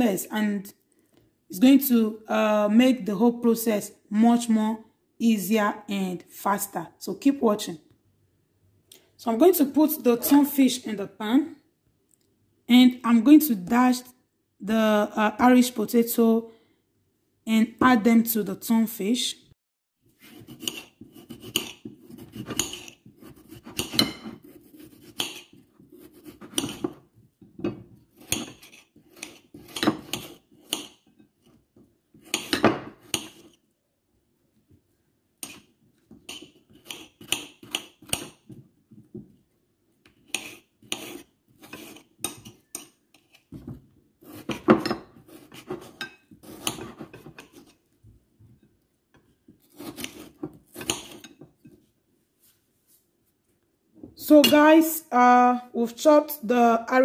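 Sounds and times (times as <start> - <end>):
knife cutting potato on plate: 20.2 - 33.6, 35.4 - 38.6, 40.1 - 47.8, 49.2 - 51.8.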